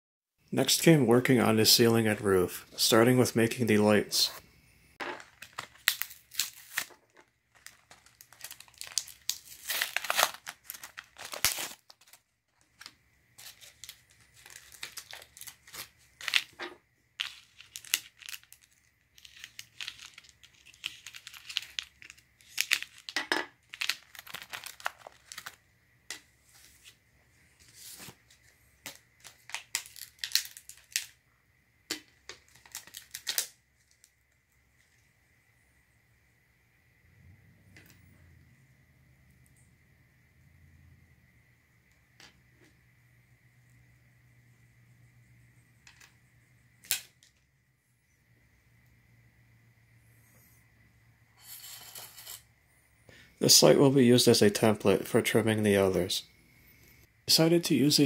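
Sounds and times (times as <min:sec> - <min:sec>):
blister packaging tearing and crinkling: 0:05.2 - 0:16.6, 0:17.2 - 0:25.6, 0:28.9 - 0:31.2, 0:31.9 - 0:34.1.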